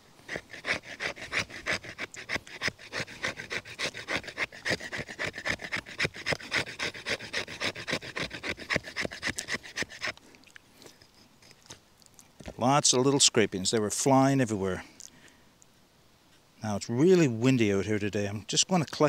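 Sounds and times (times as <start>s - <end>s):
knife scraping wooden stick: 0.0s - 10.2s.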